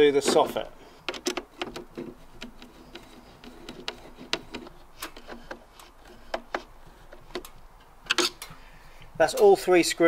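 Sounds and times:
screwdriver clicking and ticking: 0:01.1 - 0:05.6.

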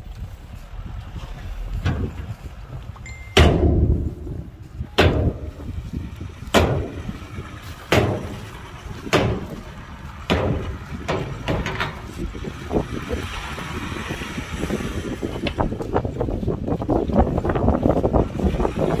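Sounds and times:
heavy bangs with low rumble: 0:00.0 - 0:12.8
steady low rumble: 0:00.0 - 0:19.0.

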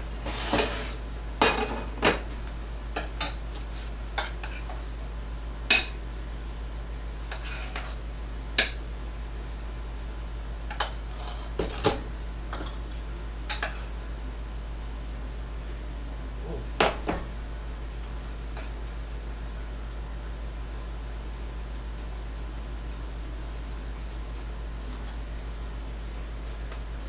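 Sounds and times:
steady low hum: 0:00.0 - 0:27.0
metal utensils clinking on pots: 0:10.7 - 0:13.8.

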